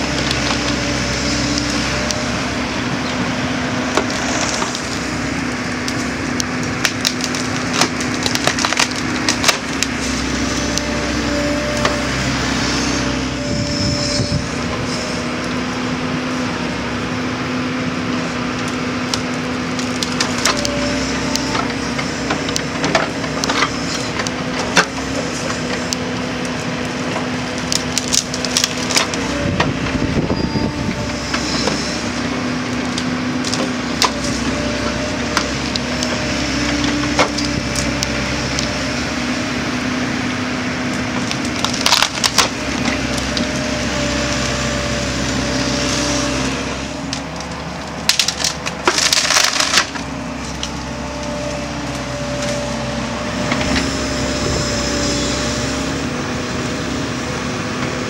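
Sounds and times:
wood cracking and splintering: 0.0 - 15.7, 18.4 - 54.7
excavator diesel engine and hydraulics: 0.0 - 58.0
felling head cutting tree trunks: 0.0 - 58.0.

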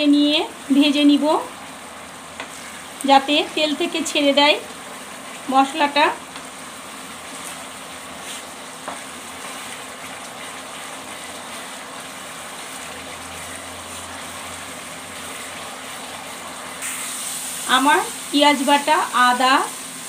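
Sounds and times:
masala paste sizzling in hot oil: 0.0 - 20.0
spatula stirring in a pan: 1.8 - 17.6.

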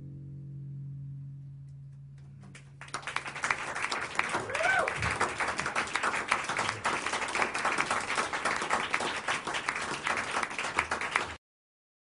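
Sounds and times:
hands clapping: 2.4 - 11.4.

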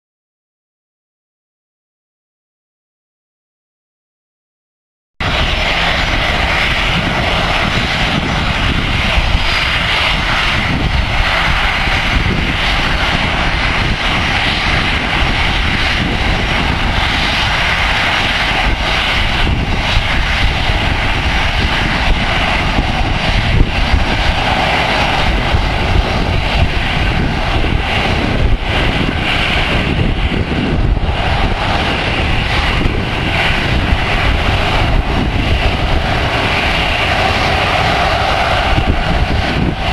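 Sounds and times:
jet engines running at low thrust: 5.2 - 39.9.

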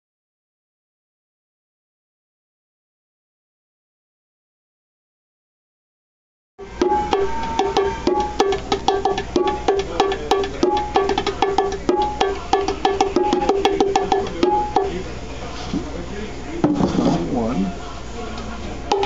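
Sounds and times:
bongos played by hand: 6.6 - 15.1.

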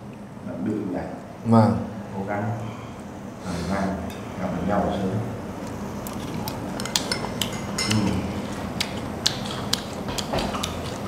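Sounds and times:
chopsticks clinking on porcelain bowls: 6.1 - 11.0.

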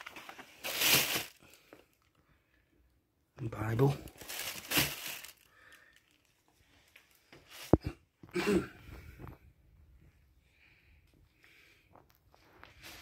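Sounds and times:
rustling and crinkling handling noise: 0.0 - 2.2, 3.4 - 8.0, 11.0 - 13.0.

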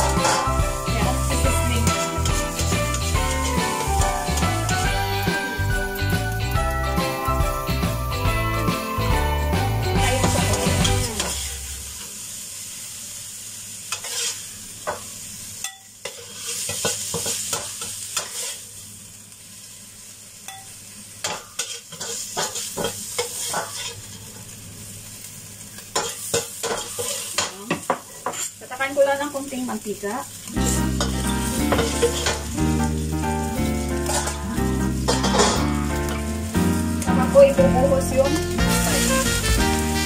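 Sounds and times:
metal spatula scraping a pan: 0.0 - 5.4, 10.0 - 11.7, 13.9 - 15.0, 15.6 - 18.7, 20.5 - 24.3, 25.9 - 28.6, 30.6 - 33.0, 34.0 - 35.8, 38.3 - 40.0
background music: 0.0 - 11.4, 30.6 - 40.0
meat sizzling in a wok: 0.0 - 40.0.

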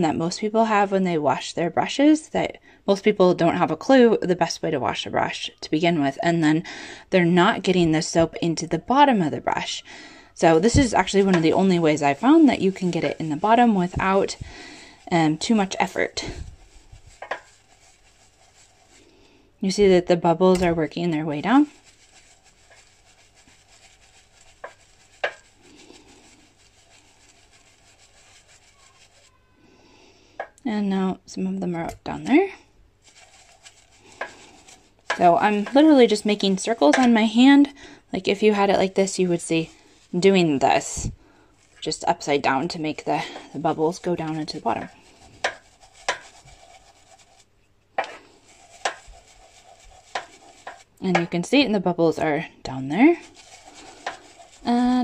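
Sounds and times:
brush rubbing against palm: 10.4 - 19.2, 20.6 - 29.6, 33.0 - 37.6, 38.4 - 51.3, 52.8 - 55.0.

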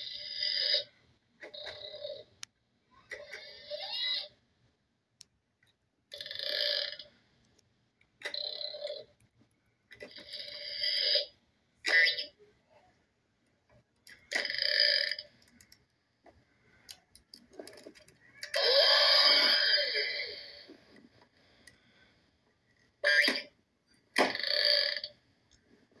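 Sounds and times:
burp-like croaking: 6.1 - 7.1, 14.3 - 15.3, 18.5 - 20.6, 24.2 - 25.2.

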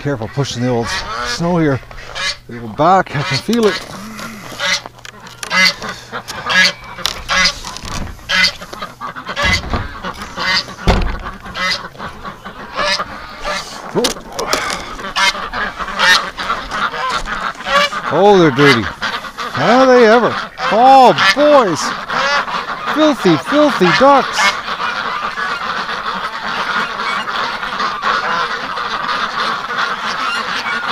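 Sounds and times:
ducks quacking: 0.0 - 30.9
dull thuds: 9.3 - 12.0.

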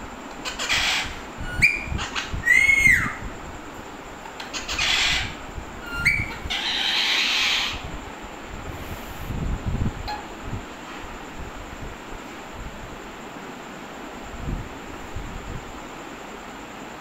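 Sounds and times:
parakeet raspy screeches: 0.4 - 3.2, 4.5 - 7.9
parakeet whistled calls: 0.4 - 3.2, 4.5 - 7.8.

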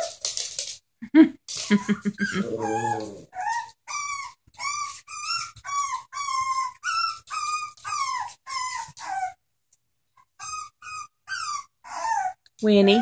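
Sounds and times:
puppy whining: 1.6 - 9.4, 10.2 - 12.5.

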